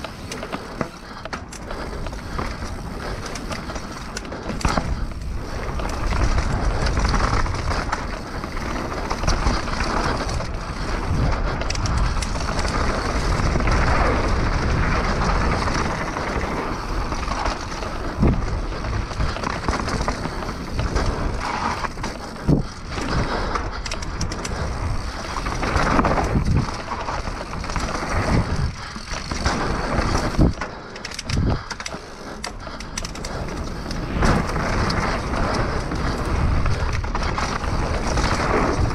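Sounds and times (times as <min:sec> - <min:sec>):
tyres rolling over dirt and leaves: 0:00.0 - 0:30.8, 0:33.0 - 0:38.9
bike rattling: 0:00.0 - 0:38.9
wind rumbling on microphone: 0:00.0 - 0:38.9.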